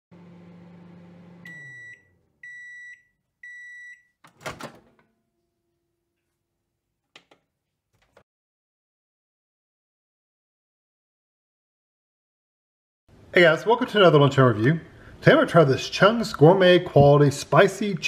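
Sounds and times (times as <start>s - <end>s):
microwave oven humming: 0.1s - 2.6s
microwave beeps: 1.1s - 4.2s
door latch clunk: 4.3s - 5.0s.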